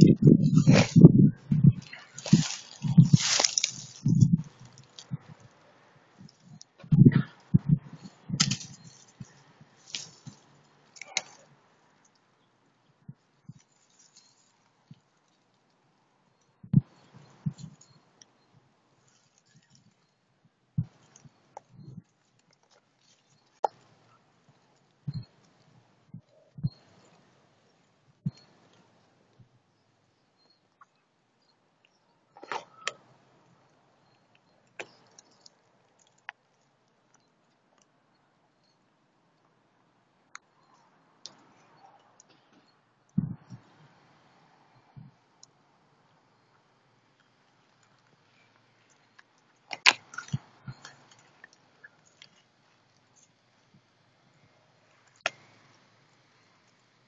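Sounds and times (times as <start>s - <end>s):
animals feeding clicks: 0.0s - 12.3s, 20.8s - 29.5s, 31.8s - 38.0s, 46.4s - 57.0s
rustling scrape on leaves: 1.9s - 5.0s.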